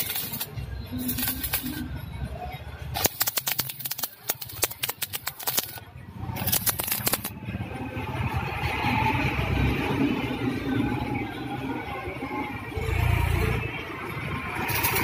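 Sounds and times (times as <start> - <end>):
welding arc crackling: 0.0 - 1.9, 3.0 - 5.8, 6.4 - 7.3, 14.6 - 15.0.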